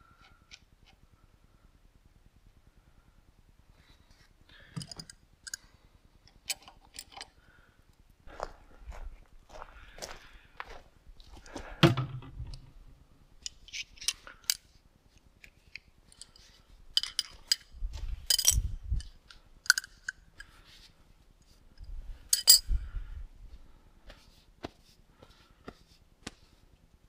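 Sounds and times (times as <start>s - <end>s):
light clinks of hard objects: 4.6s - 5.7s, 16.1s - 20.5s, 22.3s - 22.8s.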